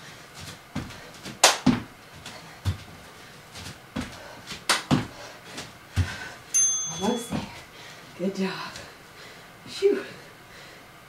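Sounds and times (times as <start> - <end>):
thuds of landing on exercise mat: 0.8 - 1.9, 3.6 - 5.2, 7.0 - 7.6.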